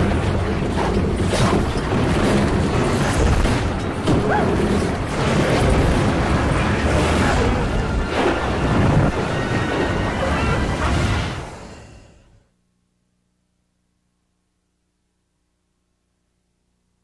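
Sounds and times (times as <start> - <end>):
heavy continuous rumble: 0.0 - 12.0
dramatic film music: 0.0 - 12.4.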